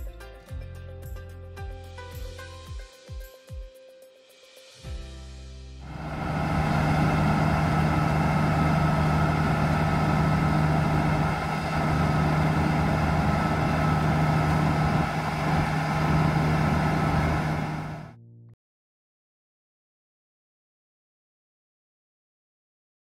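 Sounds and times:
diesel engine running steadily: 5.8s - 18.2s.

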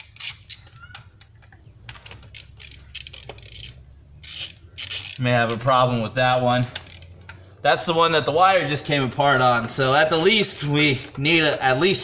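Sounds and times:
ratchet metal clicks and rattles: 0.0s - 5.7s, 6.7s - 7.4s, 8.8s - 12.0s.

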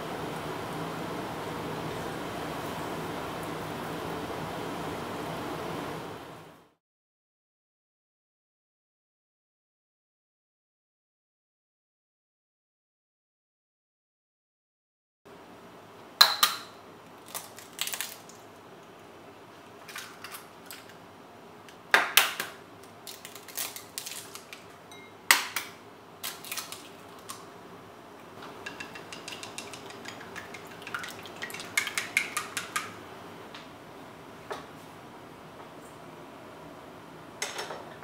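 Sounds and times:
eggshell crackles: 17.1s - 19.0s, 22.8s - 24.8s, 26.2s - 27.5s, 28.2s - 32.9s
chopsticks beating eggs in a bowl: 28.5s - 33.0s
eggs tapping on a ceramic bowl: 28.5s - 33.0s.

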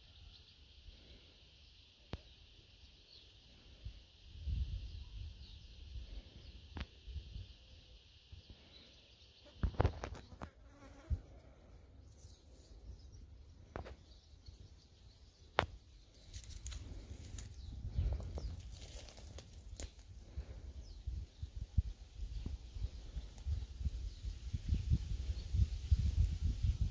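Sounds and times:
wind rumbling on microphone: 4.2s - 7.5s, 16.3s - 26.9s
flying insect buzzing: 9.4s - 11.9s
sharp clicks and rustles: 15.6s - 20.1s.

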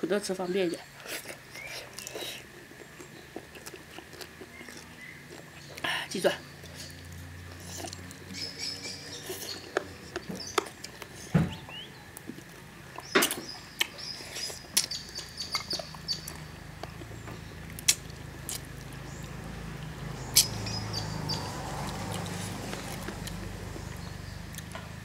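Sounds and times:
person chewing and slurping: 0.9s - 5.8s, 6.6s - 8.4s, 12.2s - 19.0s, 21.8s - 23.4s.

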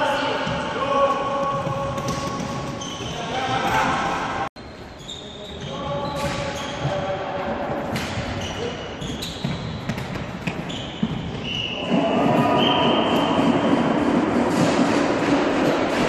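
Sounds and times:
players' voices: 0.0s - 4.5s
sneakers squeaking on floor: 0.1s - 7.2s, 8.0s - 13.6s.

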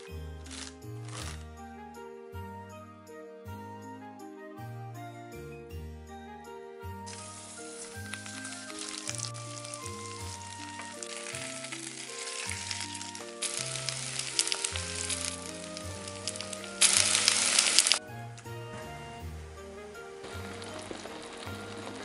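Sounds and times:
light background music: 0.0s - 22.0s
fish sizzling in a frying pan: 7.1s - 18.0s, 19.8s - 22.0s
loud steady hiss: 7.1s - 22.0s.

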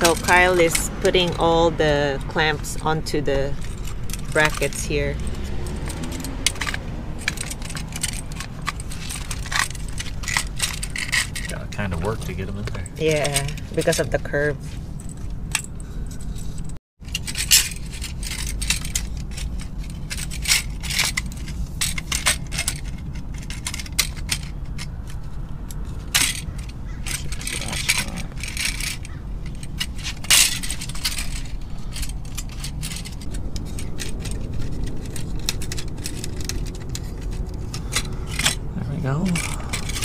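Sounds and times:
metal hose clamps clinking: 0.0s - 12.2s, 15.1s - 40.0s.

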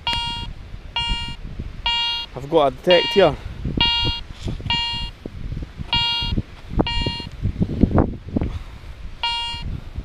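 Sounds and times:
metal detector beeping: 0.0s - 5.2s, 5.9s - 7.4s, 9.2s - 9.7s.

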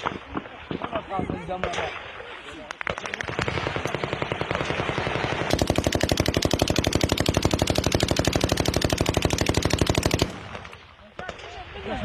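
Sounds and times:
machine gun firing burst: 2.9s - 10.7s.

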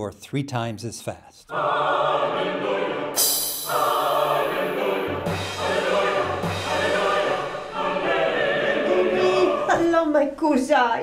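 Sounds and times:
choir singing held chords: 1.5s - 9.8s.

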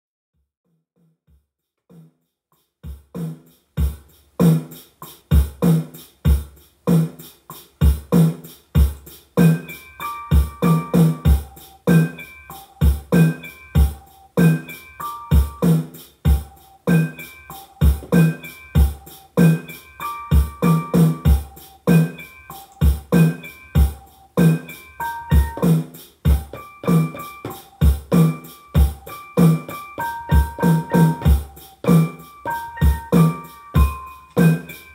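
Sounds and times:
drum machine beat: 1.0s - 34.9s
keyboard melody: 9.4s - 34.9s.

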